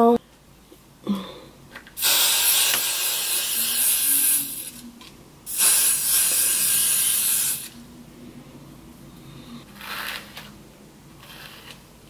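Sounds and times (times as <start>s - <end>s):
aerosol spray hissing: 2.0s - 4.8s, 5.5s - 7.8s.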